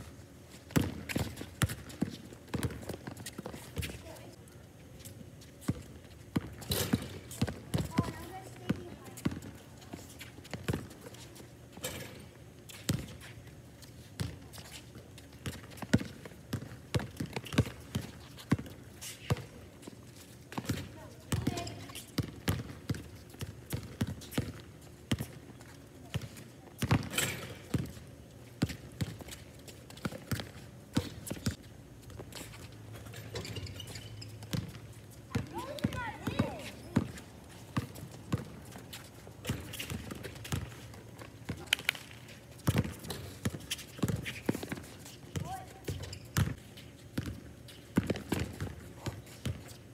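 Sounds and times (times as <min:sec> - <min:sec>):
basketball bouncing on hard court: 0:00.7 - 0:03.1, 0:06.3 - 0:09.5, 0:15.5 - 0:18.7, 0:20.5 - 0:25.4, 0:26.1 - 0:28.0, 0:33.3 - 0:37.2, 0:37.8 - 0:38.6, 0:39.4 - 0:40.7, 0:42.6 - 0:46.6, 0:48.0 - 0:49.6.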